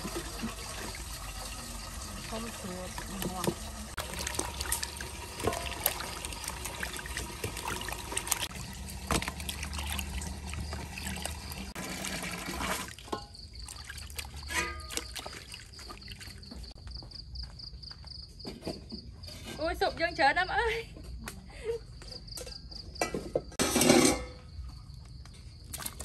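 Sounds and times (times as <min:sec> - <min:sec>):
water splashing and trickling: 0:00.0 - 0:16.8, 0:25.4 - 0:26.0
crickets chirping: 0:00.0 - 0:26.0.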